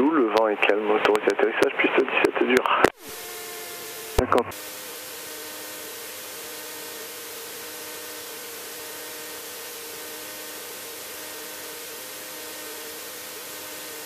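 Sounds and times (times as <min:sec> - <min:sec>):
light aircraft engine running: 0:03.0 - 0:14.0.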